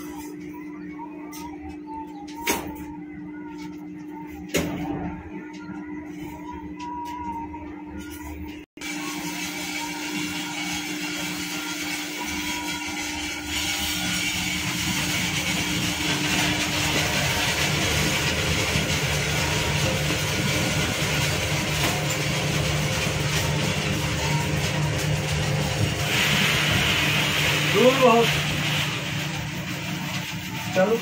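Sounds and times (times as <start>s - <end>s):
plant machinery running: 8.8s - 31.0s.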